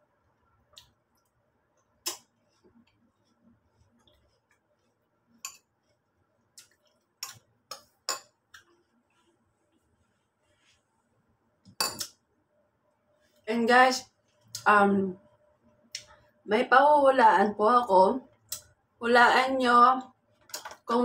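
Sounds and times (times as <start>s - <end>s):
metal spoon clinking on ceramic bowl: 11.7s - 12.1s.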